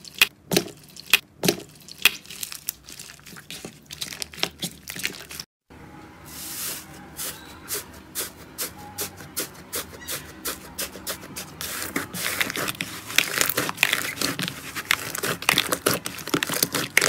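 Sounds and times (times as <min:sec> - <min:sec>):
crunchy slime crackling: 0:11.6 - 0:17.0
slime being squeezed and kneaded: 0:11.6 - 0:17.0.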